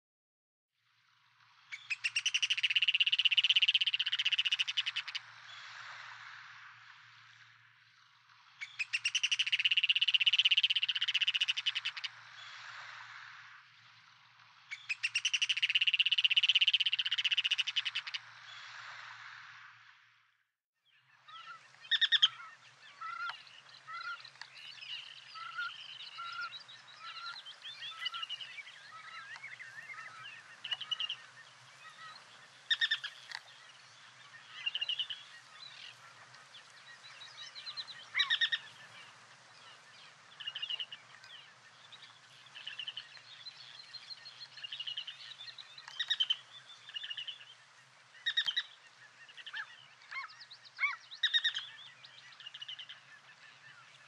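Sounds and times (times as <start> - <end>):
flock of birds calling: 21.3 - 47.4.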